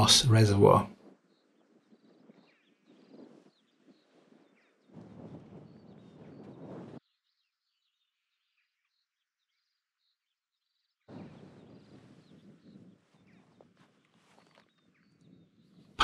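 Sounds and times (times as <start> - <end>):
faint bird chirps: 1.1 - 16.0
footsteps on stony path: 12.6 - 15.3.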